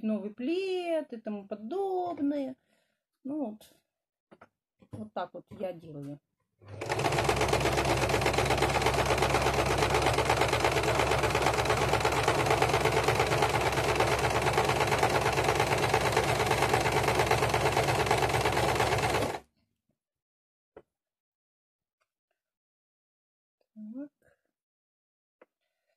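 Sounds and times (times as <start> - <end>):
sewing machine stitching: 6.6 - 19.4.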